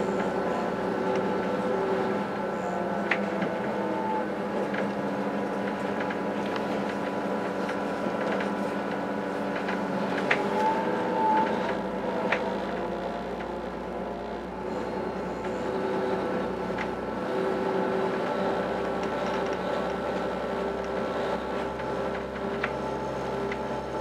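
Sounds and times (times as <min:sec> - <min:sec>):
train running rumble: 0:00.0 - 0:24.0.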